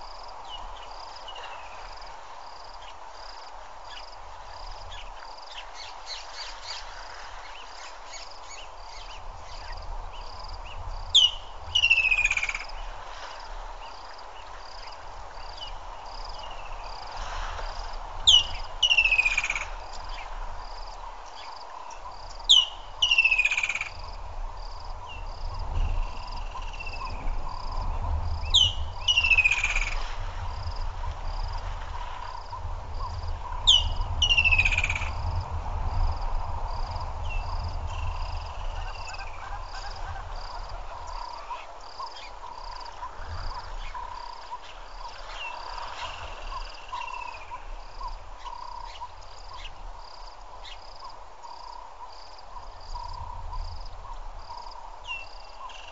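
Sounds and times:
frogs or insects chirping: 0:00.0 - 0:55.9.

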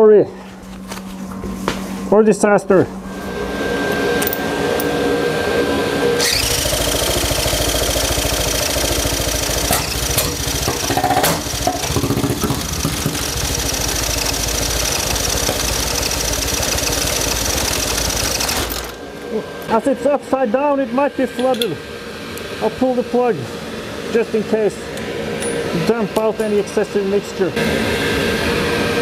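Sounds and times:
extraction fan humming: 0:00.0 - 0:29.0
electric drill cranking engine: 0:06.2 - 0:19.0.

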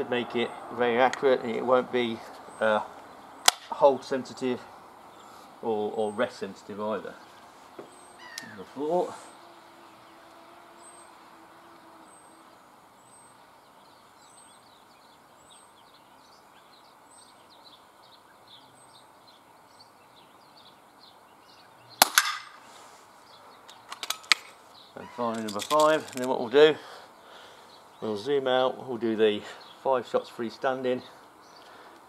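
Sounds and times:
faint bird chirps: 0:04.6 - 0:22.0, 0:24.6 - 0:25.7
air pistol shot: 0:22.0 - 0:22.6.

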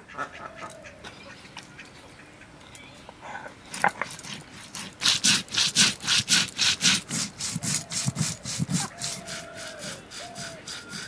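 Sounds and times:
stone rasping on stone: 0:03.8 - 0:11.0.

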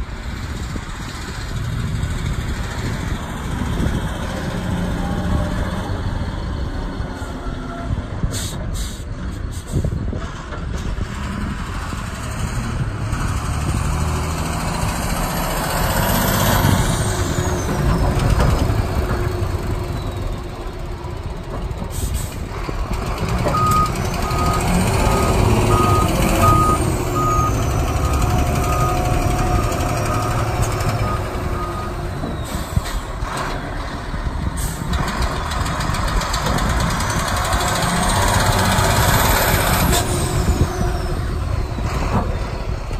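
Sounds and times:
dump truck diesel engine: 0:00.0 - 0:42.9
backup alarm beeping: 0:23.6 - 0:29.0.

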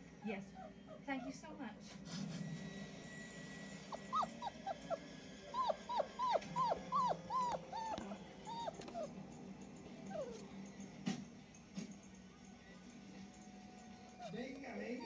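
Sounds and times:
puppy whining: 0:00.0 - 0:15.0.

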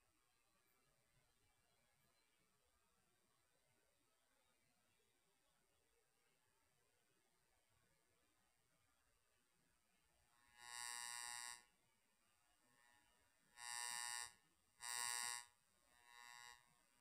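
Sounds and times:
buzzy tones: 0:10.5 - 0:11.7, 0:13.6 - 0:16.9.

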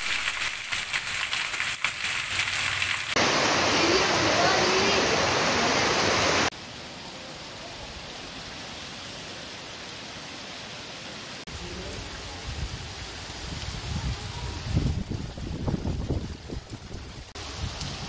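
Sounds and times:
heavy rain: 0:00.0 - 0:18.0
wind rumble on microphone: 0:11.8 - 0:18.0.

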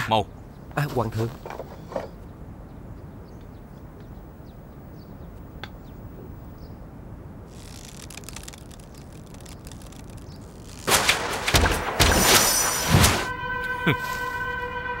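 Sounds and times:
faint bird chirps: 0:00.2 - 0:06.9
arrow rushing from bow: 0:10.7 - 0:13.3.

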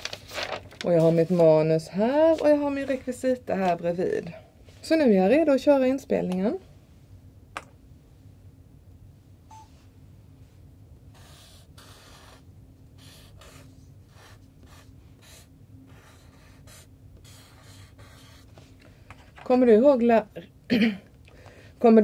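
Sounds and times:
marker writing on paper: 0:11.1 - 0:12.4, 0:13.0 - 0:18.5.

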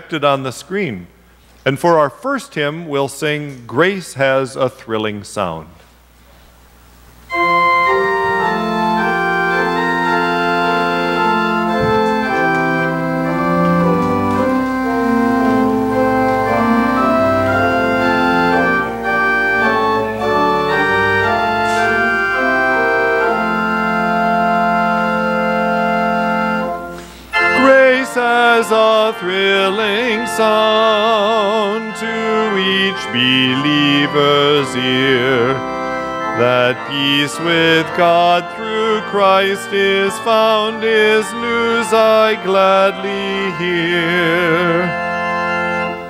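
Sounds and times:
organ playing slow chords: 0:02.6 - 0:46.0
person singing: 0:07.3 - 0:24.5, 0:27.3 - 0:35.7, 0:36.3 - 0:45.3.

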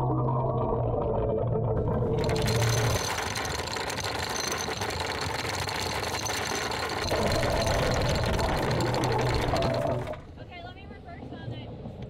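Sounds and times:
anchor chain rattling: 0:02.2 - 0:10.2
anchor windlass whirring: 0:02.2 - 0:10.3.

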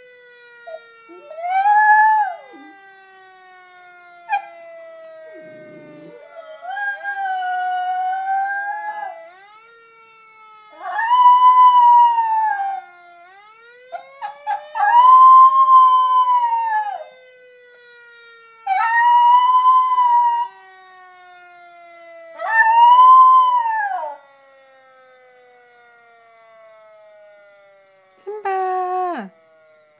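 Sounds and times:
fire siren wailing: 0:00.0 - 0:29.9
dog howling: 0:01.1 - 0:02.8, 0:05.3 - 0:08.9.

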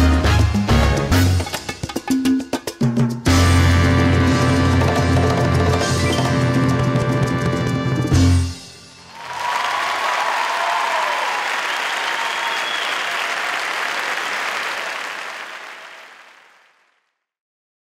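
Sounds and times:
audience applauding: 0:09.1 - 0:17.0.

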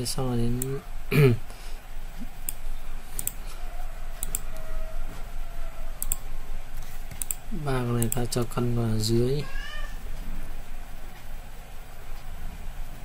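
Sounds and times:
computer mouse clicking: 0:02.1 - 0:03.4, 0:04.2 - 0:04.7, 0:06.0 - 0:08.5.

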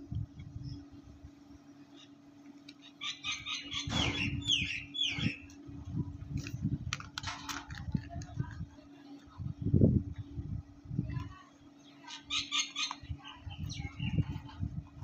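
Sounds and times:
low rumbling handling noise: 0:03.7 - 0:11.4.

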